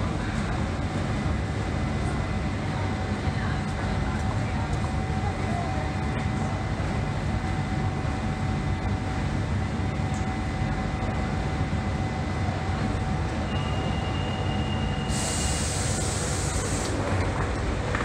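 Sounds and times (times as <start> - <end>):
train equipment humming: 0.0 - 18.0
air hiss: 15.1 - 17.0.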